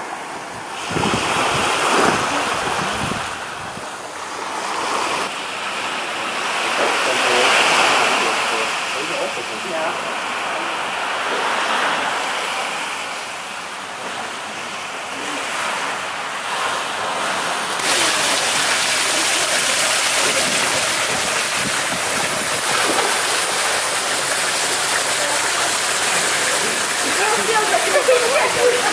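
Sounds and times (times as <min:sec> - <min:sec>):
surf washing onto beach: 0:00.0 - 0:28.9
wind: 0:00.0 - 0:28.9
water pouring into pool: 0:17.7 - 0:28.9.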